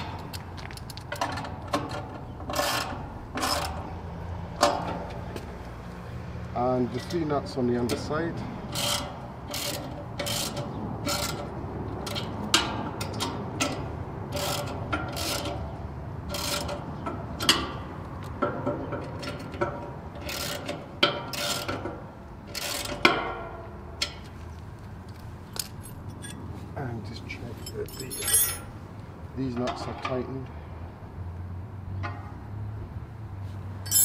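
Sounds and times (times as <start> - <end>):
ratchet wrench ratcheting: 8.7 - 11.4.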